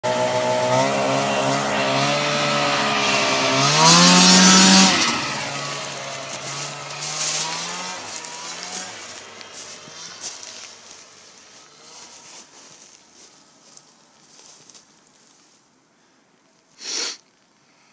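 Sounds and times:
snowmobile engine idling and revving: 0:00.0 - 0:13.8.

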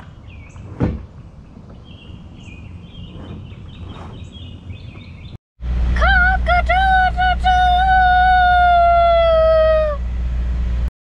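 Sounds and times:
birds chirping and singing: 0:00.0 - 0:05.4
low background rumble: 0:00.0 - 0:10.9.

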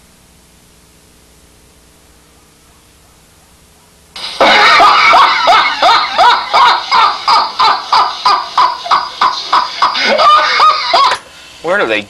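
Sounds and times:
faint tape hiss: 0:00.0 - 0:12.0
man laughing loudly: 0:04.2 - 0:11.2.

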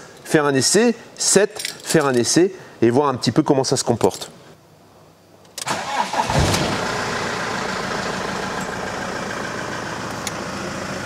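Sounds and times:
diesel engine idling: 0:05.7 - 0:11.0.

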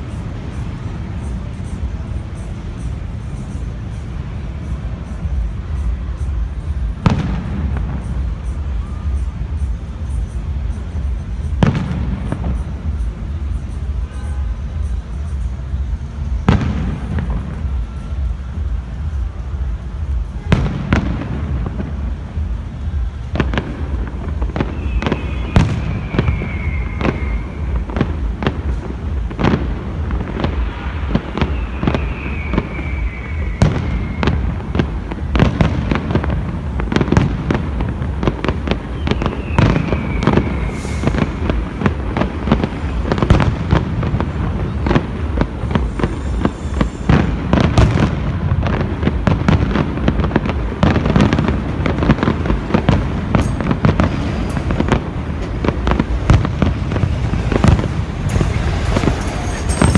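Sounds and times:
fireworks bangs and crackling: 0:00.0 - 0:59.9
high whistle falling in pitch: 0:24.6 - 0:28.1, 0:31.4 - 0:34.9, 0:38.9 - 0:41.9.

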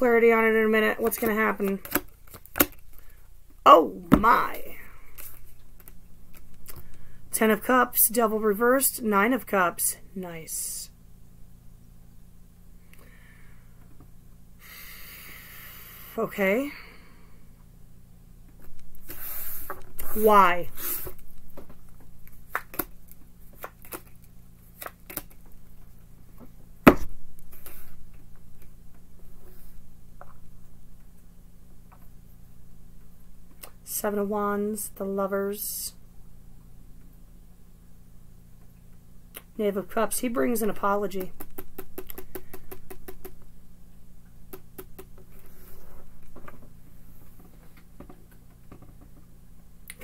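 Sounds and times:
soft card rustle: 0:05.1 - 0:07.0.

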